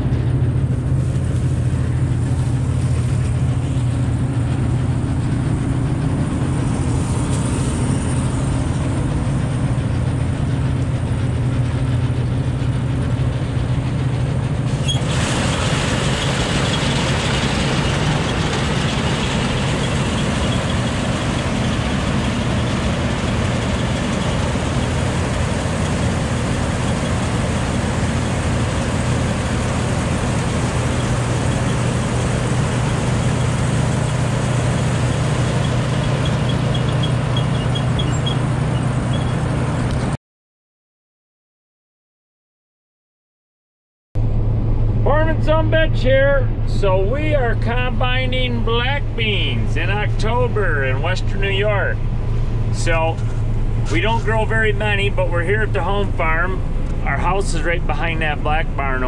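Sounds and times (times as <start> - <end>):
combine diesel engine humming: 0.0 - 40.2, 44.2 - 59.0
loud rushing hiss: 14.6 - 35.4.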